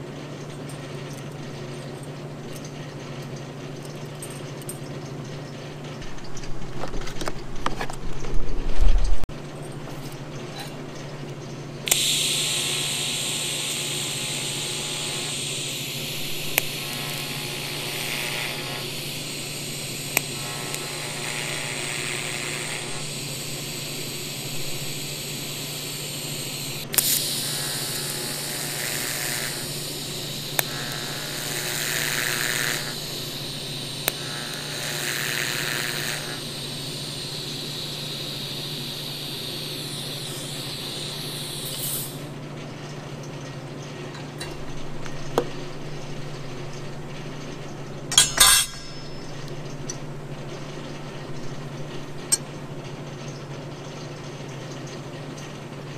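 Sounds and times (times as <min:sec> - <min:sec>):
low machine hum: 0:00.0 - 0:55.9
welding arc hissing: 0:11.9 - 0:42.4.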